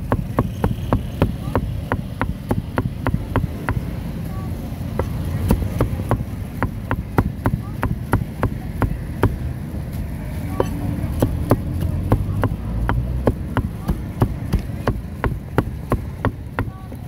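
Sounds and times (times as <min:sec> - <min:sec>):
cleaver chopping on metal pan: 0:00.0 - 0:03.9, 0:05.0 - 0:09.4, 0:10.6 - 0:16.7.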